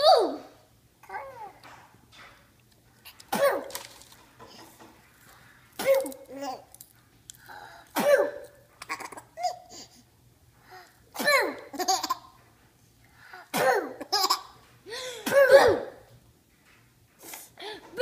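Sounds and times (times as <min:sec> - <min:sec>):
baby giggling: 0:11.6 - 0:12.3.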